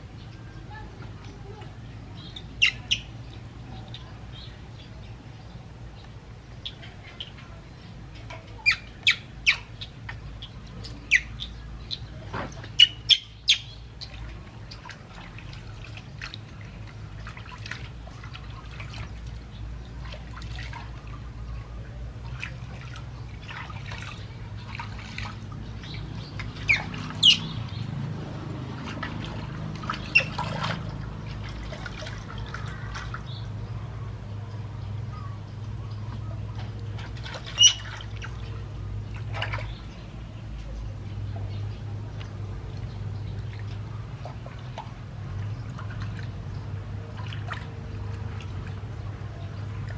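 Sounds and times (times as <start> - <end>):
water splashing: 0.0 - 49.9
baby monkey squeaking: 26.7 - 27.5, 37.5 - 37.9.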